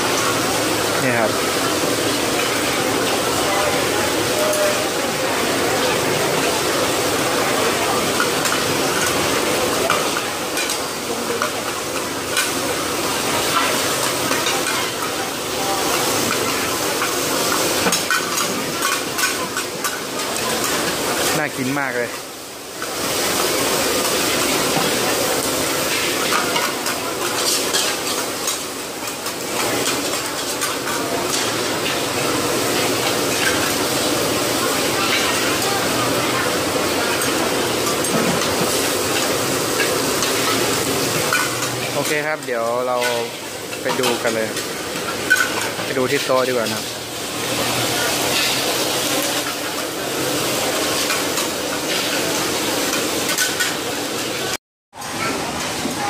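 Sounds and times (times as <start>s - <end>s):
batter sizzling on griddle: 0.0s - 55.8s
metal spatulas scraping griddle: 48.2s - 48.7s.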